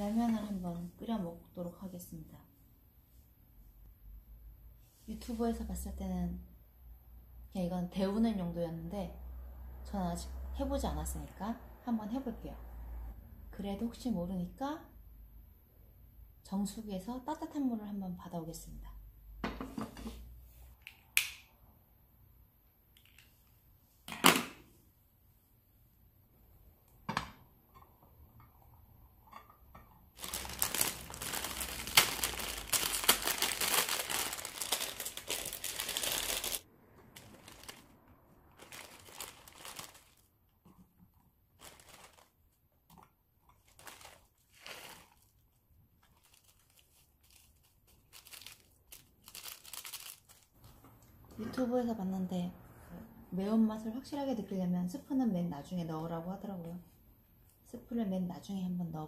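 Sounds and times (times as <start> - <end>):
packet crinkling and tearing: 30.2 - 36.6, 37.2 - 37.9, 38.5 - 40.3, 41.6 - 42.4, 43.6 - 50.5.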